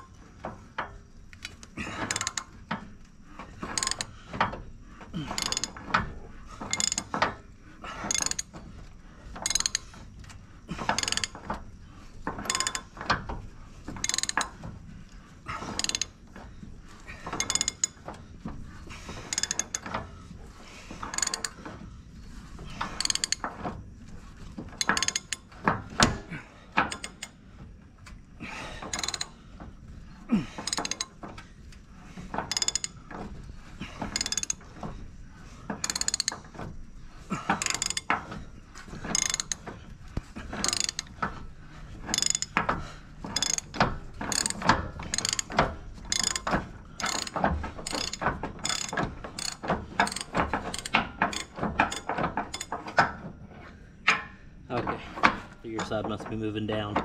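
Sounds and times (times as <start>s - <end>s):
ratchet wrench clicking: 1.3s - 2.6s, 3.6s - 4.2s, 5.2s - 5.9s, 6.6s - 7.3s, 8.0s - 8.5s, 9.4s - 10.0s, 10.9s - 11.5s, 12.4s - 13.0s, 14.0s - 14.5s, 15.6s - 16.2s, 17.4s - 18.0s, 19.3s - 20.0s, 21.1s - 21.6s, 22.9s - 23.5s, 24.8s - 25.5s, 26.8s - 27.4s, 28.9s - 29.4s, 30.6s - 31.2s, 32.5s - 33.0s, 34.0s - 34.6s, 35.8s - 36.5s, 37.6s - 38.2s, 39.1s - 39.6s, 40.6s - 41.2s, 42.1s - 42.6s, 43.3s - 52.7s.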